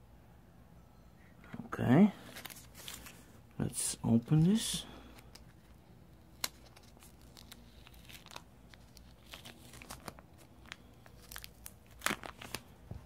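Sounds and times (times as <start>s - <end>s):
paper box rustling: 2.2s - 3.3s.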